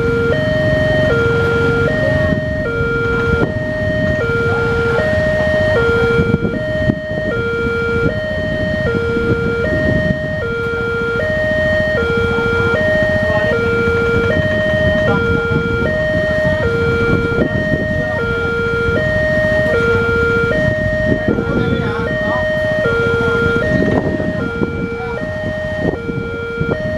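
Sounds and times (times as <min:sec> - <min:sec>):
level crossing two-tone alarm: 0:00.0 - 0:26.9
low traffic rumble: 0:00.0 - 0:26.9.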